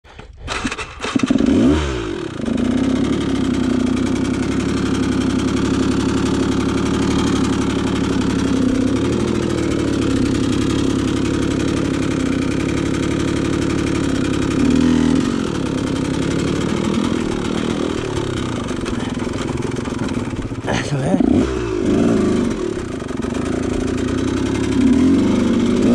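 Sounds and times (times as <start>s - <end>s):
dirt bike engine revving: 0.4s - 25.9s.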